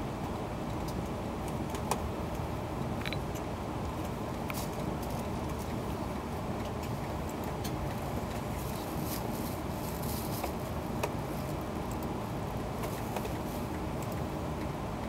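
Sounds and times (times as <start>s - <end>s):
train cabin hum: 4.8s - 15.0s
faint clicks and taps: 12.7s - 14.7s.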